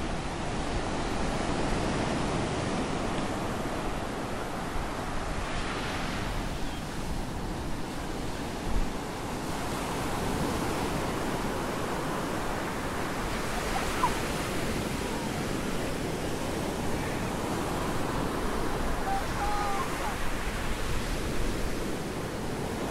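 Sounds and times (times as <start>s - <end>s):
waves breaking on beach: 0.0s - 22.9s
wind on microphone: 0.0s - 22.9s.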